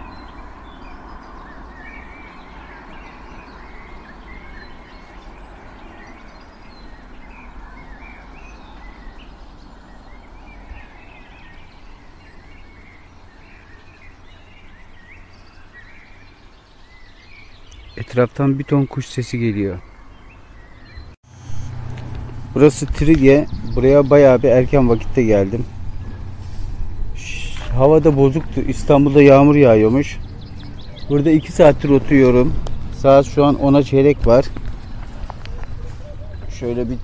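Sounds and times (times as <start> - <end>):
birds chirping and singing: 0.0 - 37.0
steady low rumble: 21.4 - 37.0.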